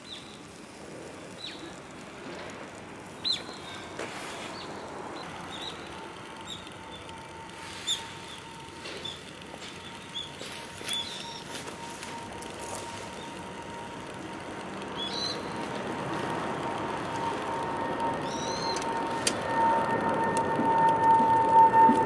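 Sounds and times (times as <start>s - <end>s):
wood fire burning in stove: 0.0s - 22.0s
bird chirps: 3.2s - 3.8s, 5.5s - 7.1s, 7.8s - 9.2s, 9.8s - 11.6s, 15.0s - 15.6s, 18.2s - 18.8s
steady whistling tone: 4.5s - 14.2s, 14.8s - 22.0s.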